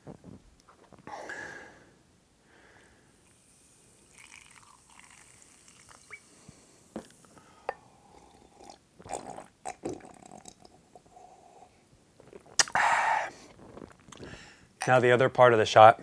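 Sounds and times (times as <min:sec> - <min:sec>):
soda pouring into cup: 0:03.2 - 0:06.4, 0:08.1 - 0:10.9
drinking sounds: 0:04.0 - 0:06.3, 0:07.0 - 0:11.2, 0:12.2 - 0:14.4.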